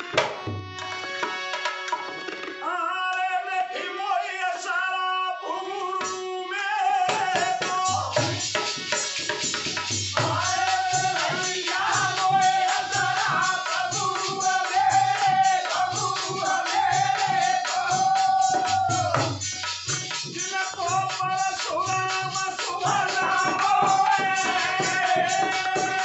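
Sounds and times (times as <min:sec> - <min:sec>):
hand drum: 0:00.0 - 0:02.6, 0:07.1 - 0:26.0
man singing: 0:02.6 - 0:08.9, 0:10.2 - 0:19.5, 0:20.1 - 0:26.0
jingling percussion: 0:07.1 - 0:26.0.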